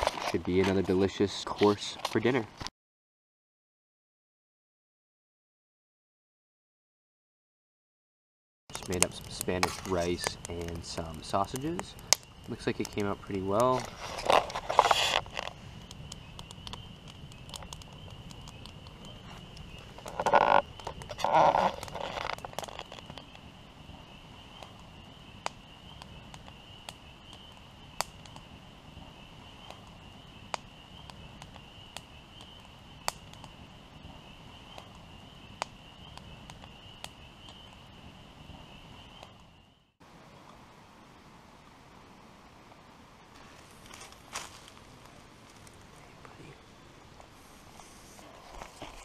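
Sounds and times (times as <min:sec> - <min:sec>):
campfire crackling and popping: 0:00.0 - 0:02.7, 0:08.7 - 0:39.6, 0:42.6 - 0:49.0
night insects trilling: 0:08.7 - 0:39.9, 0:43.4 - 0:49.0
frog croaks: 0:19.9 - 0:23.2.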